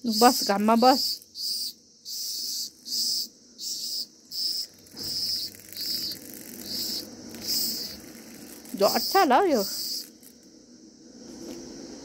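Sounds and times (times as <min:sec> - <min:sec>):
cicada buzzing in short pulses: 0:00.0 - 0:12.0.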